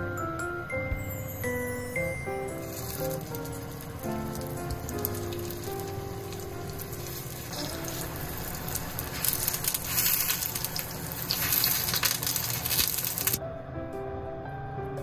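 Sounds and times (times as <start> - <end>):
mushrooms sizzling in oil: 2.3 - 13.4.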